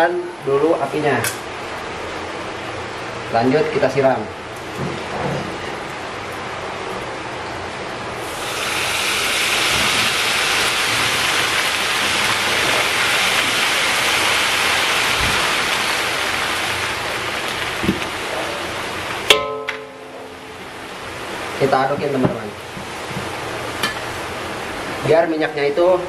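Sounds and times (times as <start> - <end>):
hot oil sizzling on chilies: 7.7 - 26.0.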